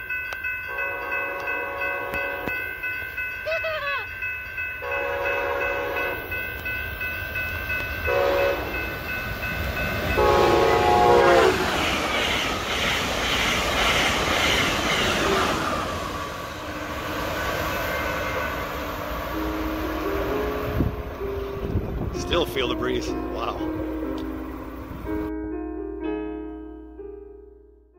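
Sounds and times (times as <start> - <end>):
crossing bell ringing: 0.0 - 13.1, 14.6 - 27.8
train wheels and wind rushing past: 0.0 - 25.3
train horn blasts: 0.7 - 2.6, 4.8 - 6.4, 8.0 - 8.9, 10.1 - 11.7.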